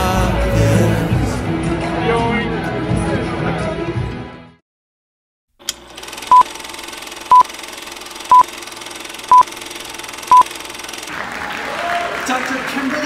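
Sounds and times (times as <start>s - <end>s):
short high beeps: 6.3s - 6.5s, 7.3s - 7.5s, 8.3s - 8.5s, 9.3s - 9.5s, 10.3s - 10.5s.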